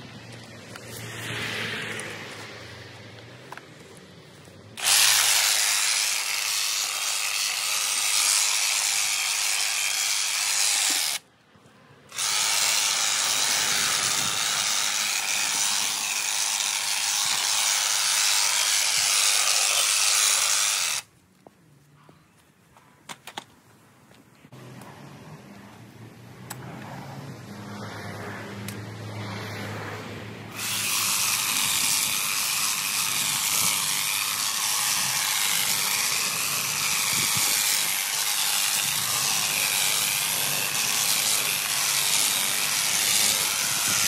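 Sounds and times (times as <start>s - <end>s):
hedge trimmer cutting hedge: 0.0s - 3.2s, 3.9s - 11.2s, 12.1s - 21.1s, 30.5s - 44.0s.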